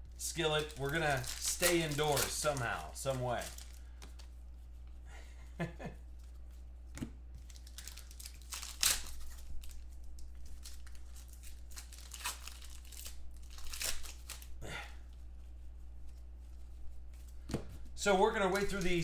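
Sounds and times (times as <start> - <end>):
low steady hum: 0.0 - 19.0
card pack wrappers crinkling and tearing: 0.2 - 4.3, 7.4 - 14.6, 18.4 - 19.0.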